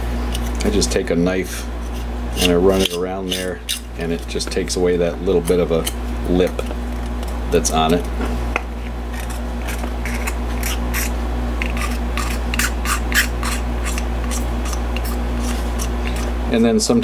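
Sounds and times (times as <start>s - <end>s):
low steady hum: 0.0s - 17.0s
knife blade scraping plastic: 1.5s - 4.5s, 9.1s - 16.3s.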